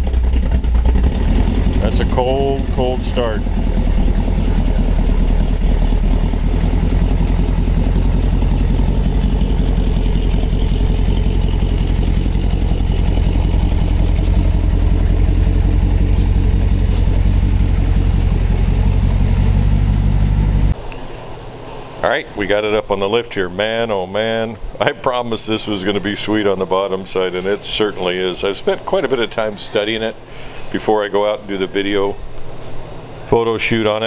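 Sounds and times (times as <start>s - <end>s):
vehicle engine running: 0.0s - 20.8s.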